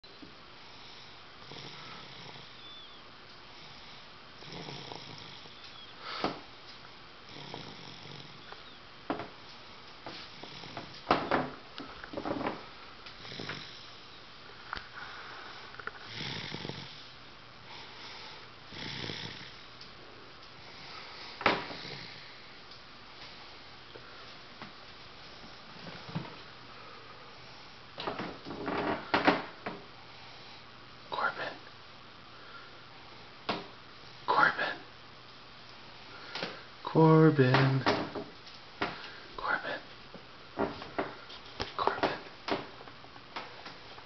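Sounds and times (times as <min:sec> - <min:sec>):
toddler snoring: 0:00.7 - 0:06.4, 0:07.3 - 0:08.8, 0:10.2 - 0:11.0, 0:13.2 - 0:14.0, 0:15.5 - 0:17.1, 0:17.7 - 0:19.6, 0:20.7 - 0:22.4.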